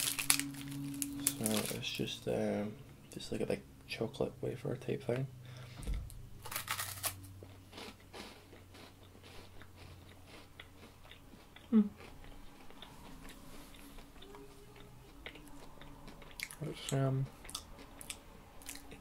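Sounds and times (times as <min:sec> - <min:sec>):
chewing with soft crunches: 0:07.3 - 0:19.0.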